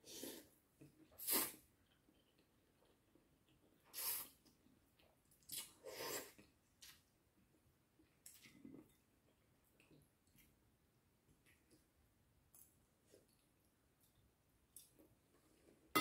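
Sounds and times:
noodles being slurped: 0:01.2 - 0:01.7.

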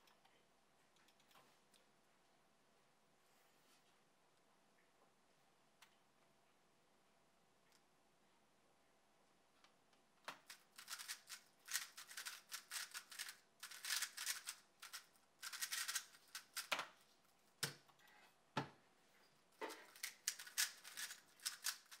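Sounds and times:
puzzle cube plastic clicks: 0:10.4 - 0:17.0, 0:19.7 - 0:22.0.

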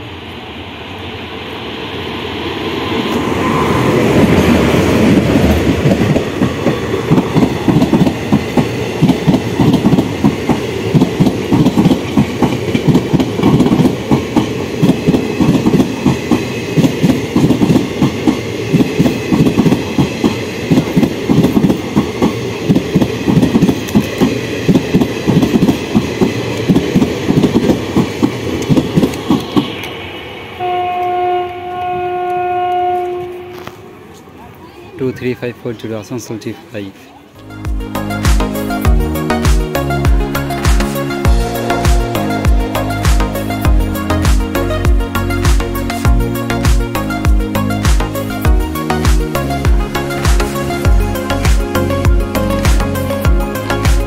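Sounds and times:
electric locomotive passing: 0:00.0 - 0:54.0
train wheels clacking over rail joints: 0:05.1 - 0:30.0.

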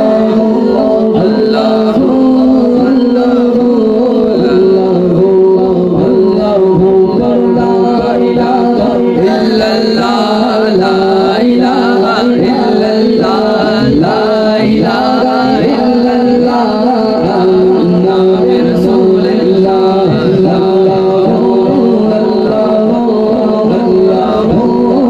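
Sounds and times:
man singing into a microphone: 0:00.0 - 0:25.0
steady held tone: 0:00.0 - 0:25.0.

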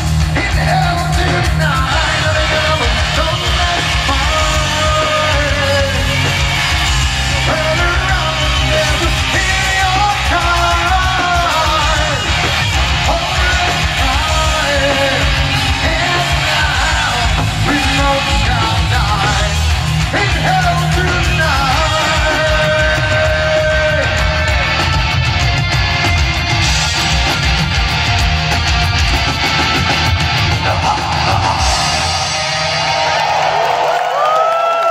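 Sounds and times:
person singing and yelling: 0:00.0 - 0:25.3, 0:30.5 - 0:32.4
heavy metal band playing live: 0:00.0 - 0:34.9.

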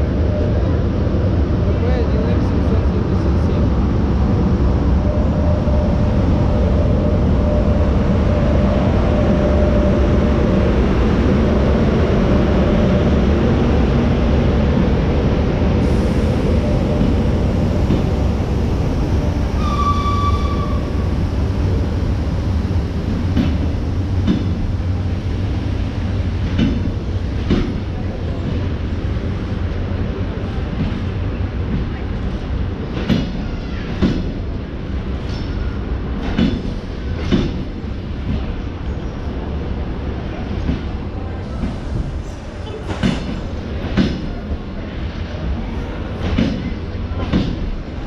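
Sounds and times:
locomotive hum: 0:00.0 - 0:48.0
train wheels rumbling on rail: 0:00.0 - 0:48.0
high squeal: 0:19.6 - 0:21.0.

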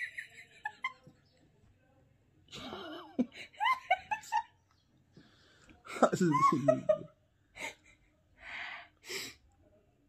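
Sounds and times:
woman laughing: 0:02.6 - 0:04.6, 0:06.2 - 0:08.0.

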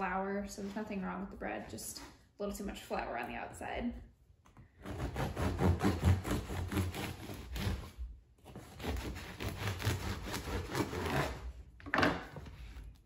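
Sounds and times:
bread knife sawing through crust: 0:04.8 - 0:11.5.

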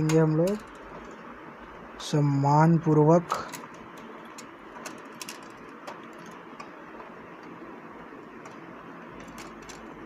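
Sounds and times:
steady background hiss: 0:00.0 - 0:10.0.

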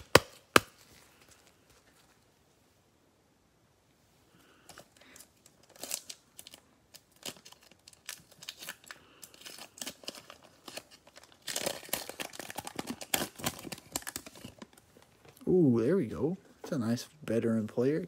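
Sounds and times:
plastic wrapper crinkling: 0:04.7 - 0:15.5.

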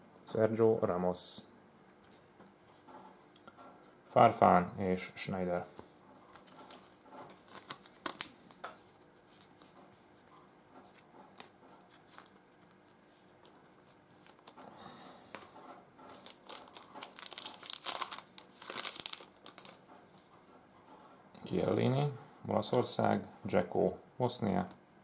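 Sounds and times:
cards clicking: 0:06.3 - 0:08.7
foil wrappers crinkling: 0:06.3 - 0:09.8, 0:10.8 - 0:14.7, 0:16.1 - 0:19.9.

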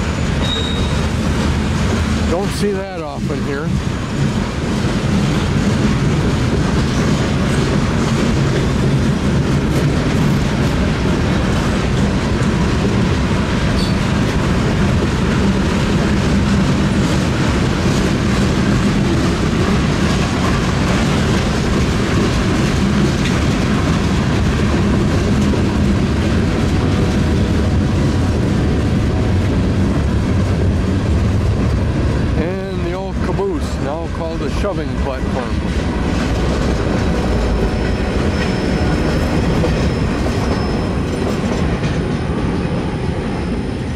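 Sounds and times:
freight cars rolling on rails: 0:00.0 - 0:43.9.

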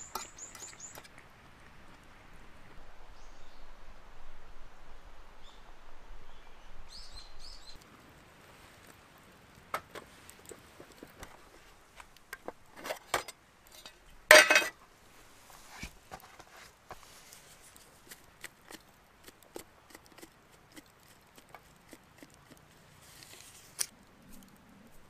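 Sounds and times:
camp cookware clattering: 0:00.0 - 0:01.2, 0:12.3 - 0:14.8
small birds chirping: 0:00.0 - 0:01.2, 0:05.4 - 0:07.8.

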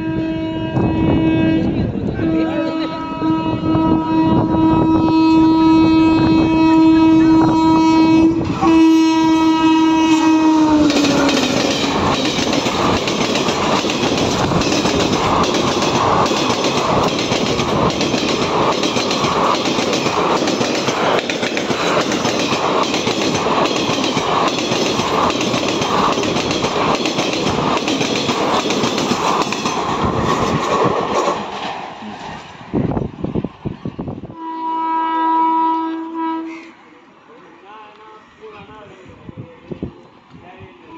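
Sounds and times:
train horn: 0:00.0 - 0:12.0, 0:34.2 - 0:37.0.

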